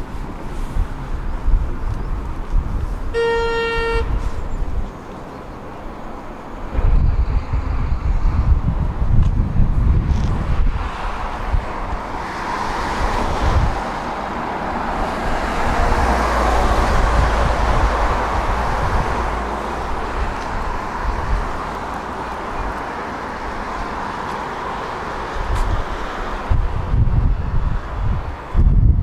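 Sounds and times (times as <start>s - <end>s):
cars passing: 0.0s - 29.0s
low rumble: 6.7s - 12.0s.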